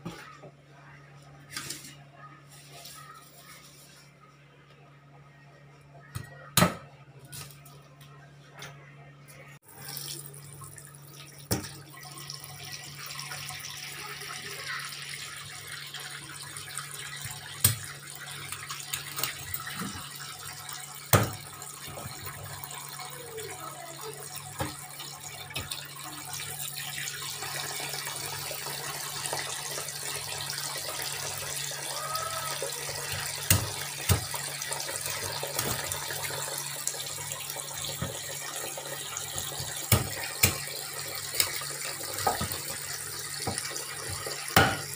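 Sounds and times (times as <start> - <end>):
tap water running into sink: 9.7 - 44.9.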